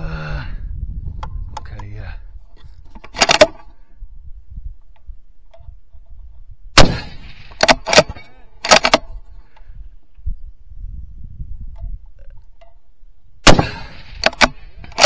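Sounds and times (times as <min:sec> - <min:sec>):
rifle action metallic clacks: 0:02.6 - 0:03.7, 0:06.8 - 0:09.6, 0:13.5 - 0:15.0
rifle shot: 0:03.1 - 0:03.6, 0:06.7 - 0:09.1, 0:13.4 - 0:15.0.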